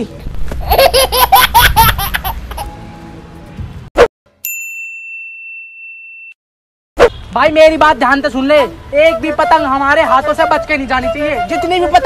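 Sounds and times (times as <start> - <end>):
young man laughing: 0.6 - 2.7.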